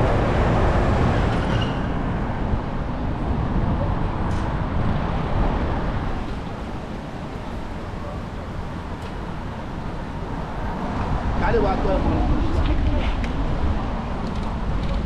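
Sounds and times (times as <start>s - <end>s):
street traffic rumble: 0.0s - 15.0s.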